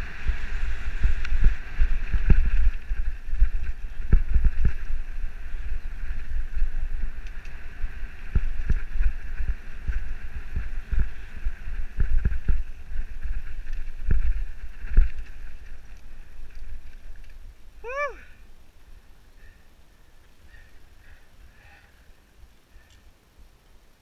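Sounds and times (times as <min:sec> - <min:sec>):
bike knocking and rattling: 0:00.0 - 0:17.6
wind rumble on microphone: 0:00.0 - 0:24.0.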